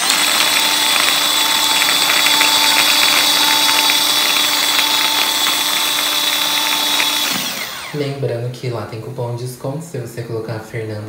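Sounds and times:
food chopper blades chopping: 0.0s - 8.0s
motor whine: 0.0s - 8.0s.

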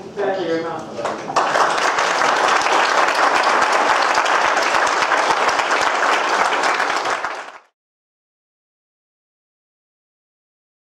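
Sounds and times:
audience applauding: 1.0s - 7.8s.

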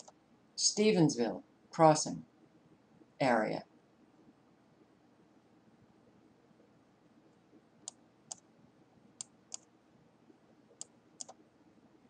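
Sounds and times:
computer mouse clicking: 0.0s - 0.2s, 7.8s - 8.5s, 9.2s - 9.7s, 10.7s - 11.4s.

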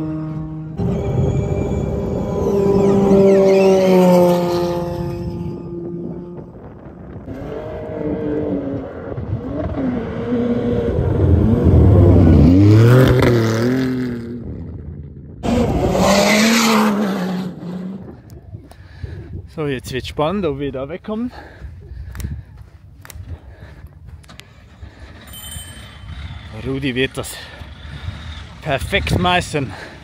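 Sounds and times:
rally car engine revving: 0.0s - 18.4s.

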